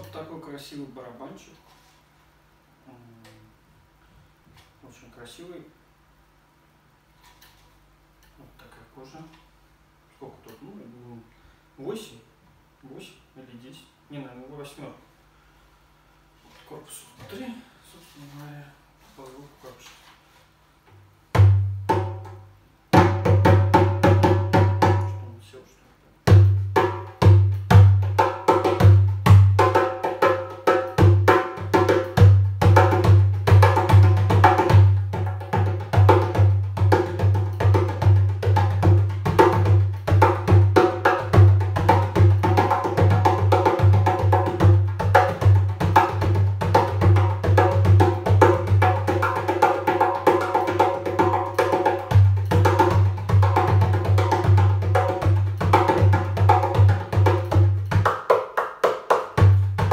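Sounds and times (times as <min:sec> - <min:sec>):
djembe played by hand: 0:21.3 - 0:25.2, 0:26.2 - 0:59.9.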